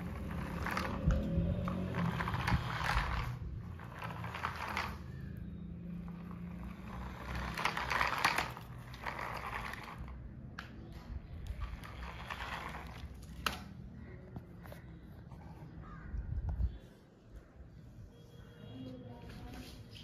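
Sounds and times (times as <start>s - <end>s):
toy car motor whirring: 0.0s - 10.2s, 11.4s - 13.6s.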